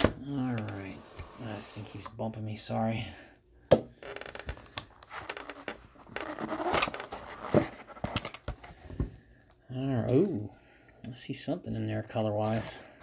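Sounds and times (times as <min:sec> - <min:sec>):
cardboard rustling and scraping: 0:04.4 - 0:09.1.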